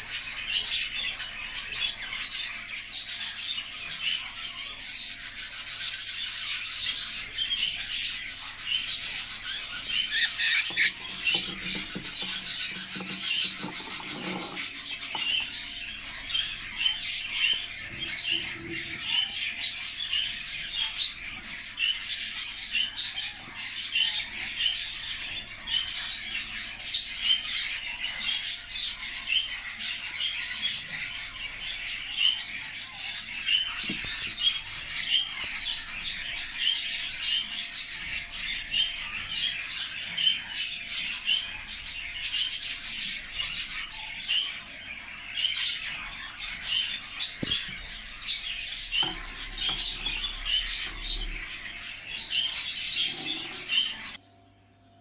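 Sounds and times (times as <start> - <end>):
budgerigars chattering: 0.0 - 54.2.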